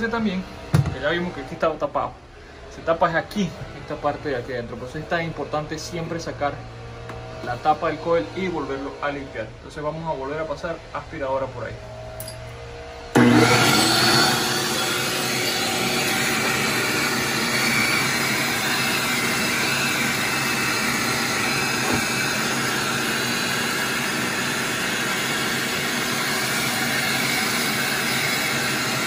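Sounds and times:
shop vacuum running: 0.0 - 29.0.

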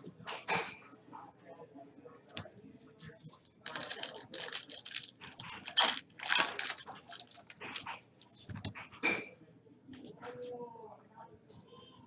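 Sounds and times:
foil wrapper tearing and crinkling: 3.6 - 7.8.

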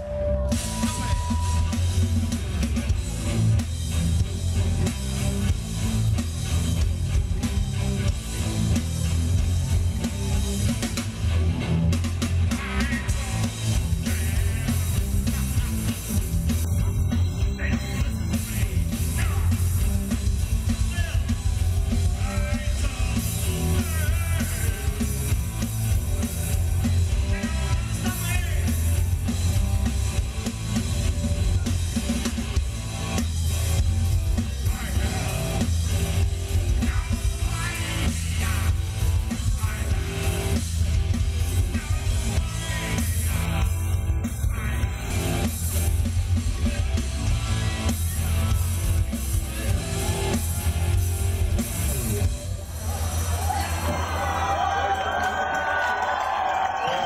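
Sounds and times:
bass guitar: 0.0 - 55.0
drum kit: 0.0 - 57.0
electric guitar: 0.0 - 57.0
man singing: 12.5 - 15.6, 16.6 - 19.9, 20.6 - 25.4, 27.1 - 29.0, 34.4 - 35.7, 36.6 - 40.6, 41.5 - 45.2.

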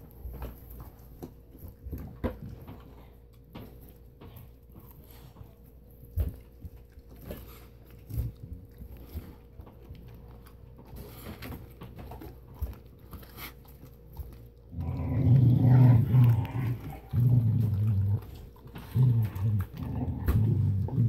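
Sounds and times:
dog chewing bone: 0.0 - 21.0
dog growling: 14.6 - 21.0.

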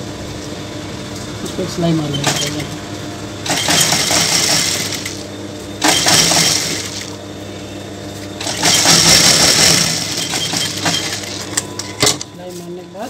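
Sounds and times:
motor humming: 0.0 - 13.0
sewing machine stitching: 2.2 - 2.6, 3.4 - 5.2, 5.8 - 7.1, 8.4 - 11.5.

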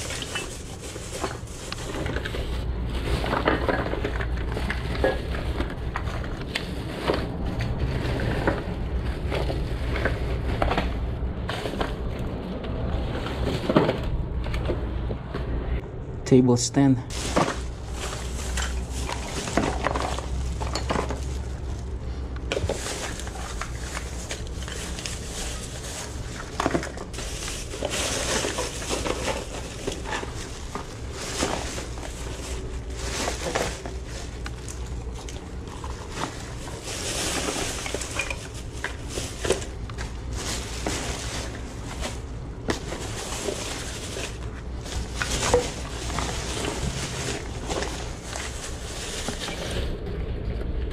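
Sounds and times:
plastic bags rustling: 0.0 - 15.1, 17.1 - 50.2
packages knocking together: 17.1 - 21.8, 22.4 - 49.6.

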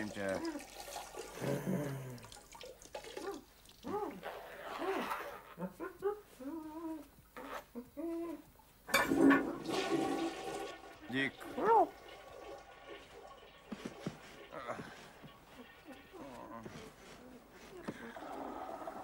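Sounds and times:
splashing in toilet bowl: 0.0 - 4.2, 9.0 - 15.4.

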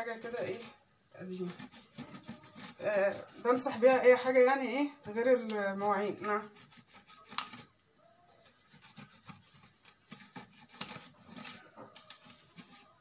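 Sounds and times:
scouring pad scrubbing: 1.3 - 4.6, 5.6 - 7.7, 8.4 - 13.0.

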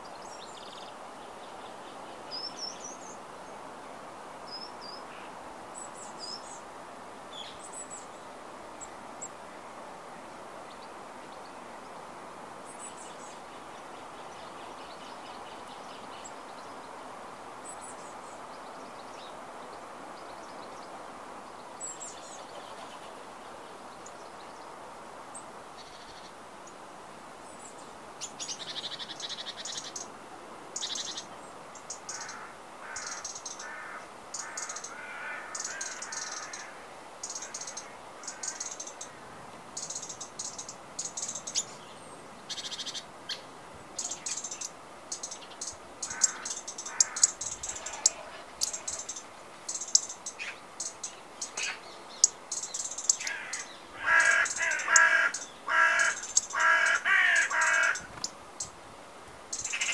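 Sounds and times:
large bird loud calls: 30.8 - 41.8, 42.5 - 58.3, 59.5 - 59.9.

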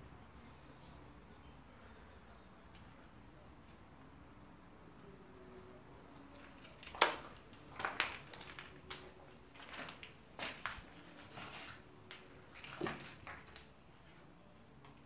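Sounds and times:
footsteps crunching over debris: 6.4 - 13.6.

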